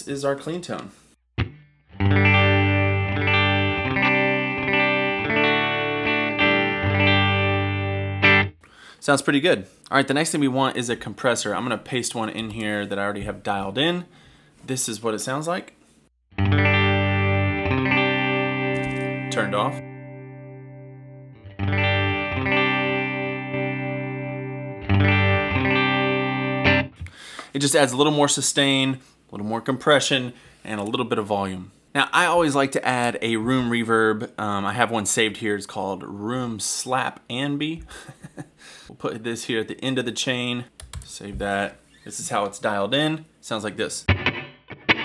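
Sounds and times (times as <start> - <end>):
clean electric guitar chords: 1.4 - 8.5, 16.3 - 27.0, 44.1 - 45.0.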